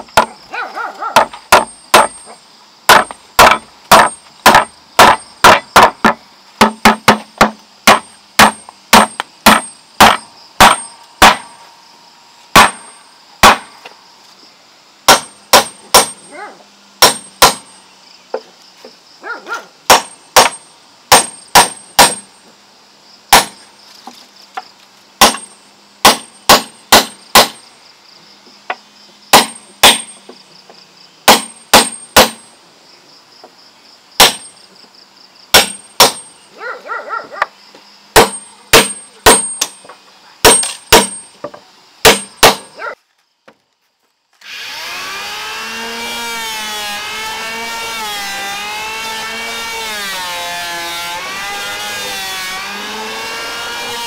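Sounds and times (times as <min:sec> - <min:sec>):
hammer striking nails into wood: 0:01.2 - 0:02.2, 0:02.9 - 0:11.5, 0:12.6 - 0:12.8, 0:15.1 - 0:16.2, 0:17.0 - 0:17.7, 0:19.9 - 0:22.2, 0:23.3 - 0:23.5, 0:25.2 - 0:27.6, 0:29.3 - 0:30.1, 0:31.3 - 0:32.4, 0:34.2 - 0:34.5, 0:35.5 - 0:36.2, 0:38.2 - 0:39.8, 0:40.4 - 0:41.2, 0:42.0 - 0:42.7.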